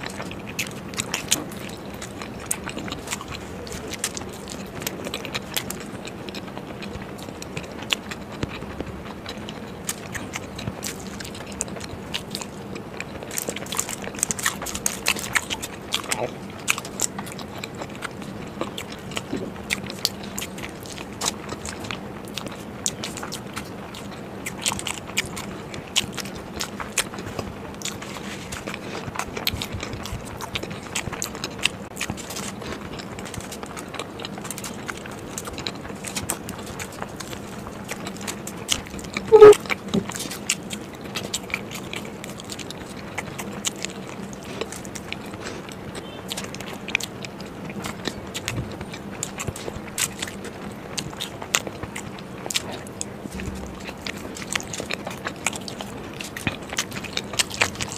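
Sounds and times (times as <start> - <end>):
chewing with mouth clicks: 0.0 - 57.9
loud mouth or throat sound: 39.3 - 39.6.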